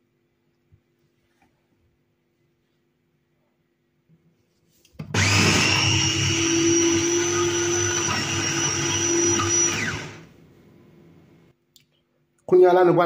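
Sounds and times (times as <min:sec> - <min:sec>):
food processor whining: 0:05.0 - 0:10.4.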